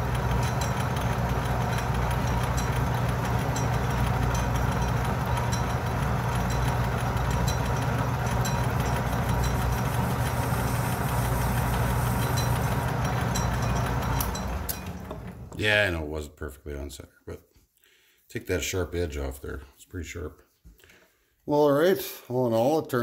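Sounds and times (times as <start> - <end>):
metal lathe humming: 0.0 - 15.6.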